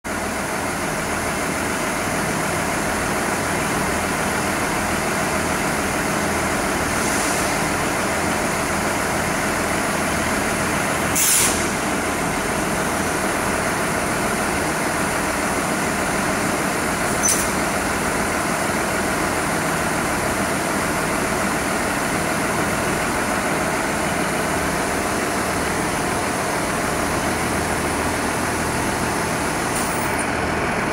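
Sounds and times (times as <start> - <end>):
diesel engine idling: 0.1 - 30.9
short hisses: 11.2 - 11.8.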